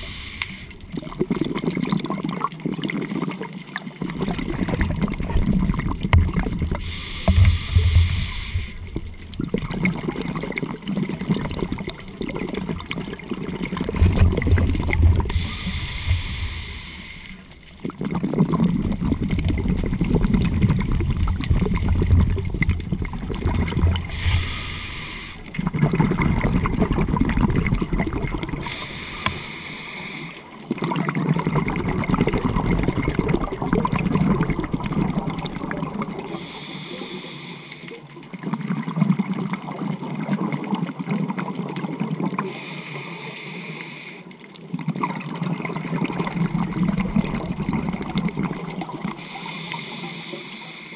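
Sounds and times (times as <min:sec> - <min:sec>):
diver breathing through regulator: 0:00.0 - 0:00.9, 0:06.7 - 0:09.1, 0:15.2 - 0:17.5, 0:24.0 - 0:25.6, 0:28.5 - 0:30.6, 0:36.2 - 0:38.0, 0:42.4 - 0:44.4, 0:49.1 - 0:50.9
bubbling exhale underwater: 0:00.0 - 0:50.7.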